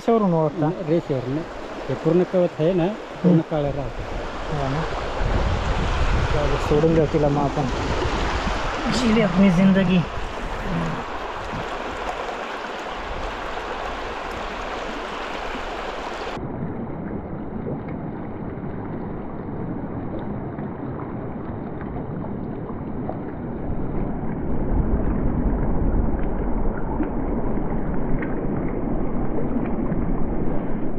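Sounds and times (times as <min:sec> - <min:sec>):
river rushing over rocks: 0:00.0 - 0:16.4
water lapping at microphone: 0:00.0 - 0:16.4, 0:17.0 - 0:30.9.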